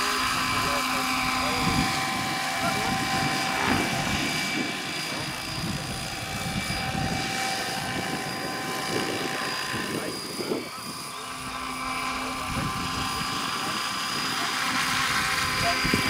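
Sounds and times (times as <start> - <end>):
electric drive whine: 0.0 - 16.0
helicopter main rotor: 0.0 - 16.0.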